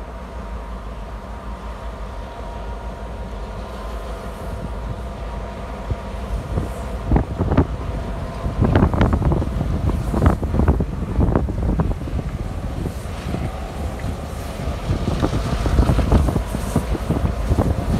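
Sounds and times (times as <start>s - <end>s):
diesel locomotives humming: 0.0s - 17.9s
wind buffeting microphone: 3.5s - 17.9s.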